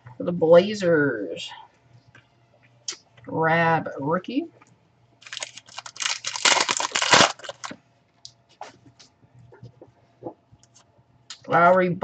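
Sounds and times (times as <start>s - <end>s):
wrapper tearing and crinkling: 5.2s - 7.8s.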